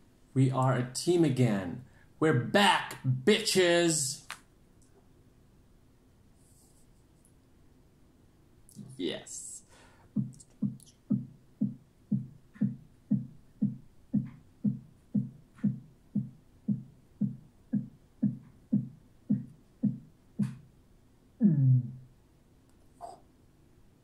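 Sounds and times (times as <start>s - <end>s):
low drum beat: 10.2s - 20.6s.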